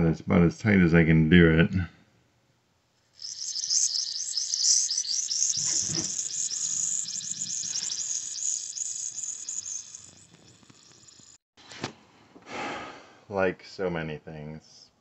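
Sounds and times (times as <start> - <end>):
pressurised water hissing and spitting: 3.2 - 11.4.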